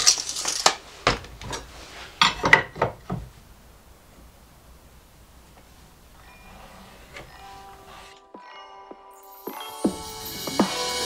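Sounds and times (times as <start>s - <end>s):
tape measure rattle: 0.0s - 0.8s.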